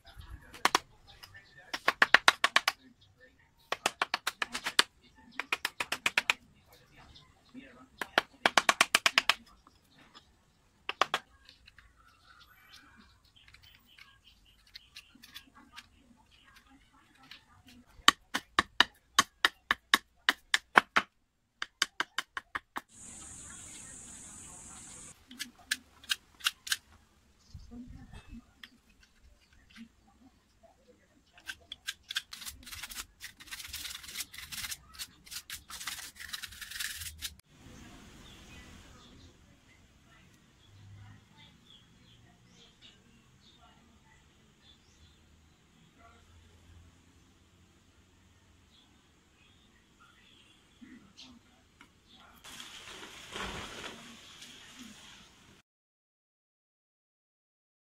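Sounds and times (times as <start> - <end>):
faint steady hiss: 22.9 - 25.2
knife scraping wood: 31.4 - 37.4.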